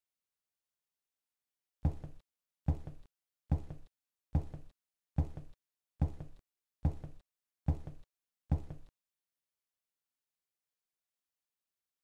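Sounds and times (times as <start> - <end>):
cartoon footsteps: 1.9 - 8.9.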